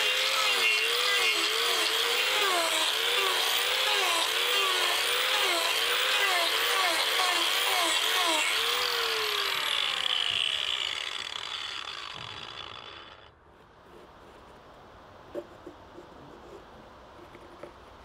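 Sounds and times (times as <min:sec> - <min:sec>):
angle grinder grinding wood: 0:00.0 - 0:13.4.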